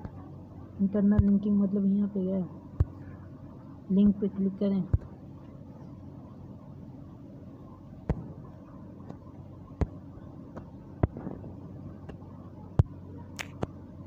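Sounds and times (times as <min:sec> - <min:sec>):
low background hum: 0:00.0 - 0:14.0.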